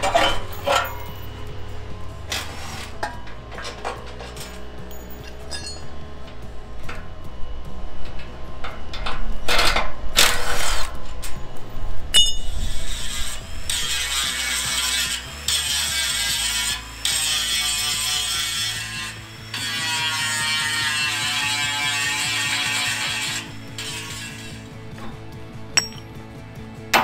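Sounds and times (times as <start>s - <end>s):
metal clinks and knocks: 0.0s - 6.5s, 25.0s - 26.2s
power tool on metal: 10.2s - 11.1s, 12.6s - 24.8s.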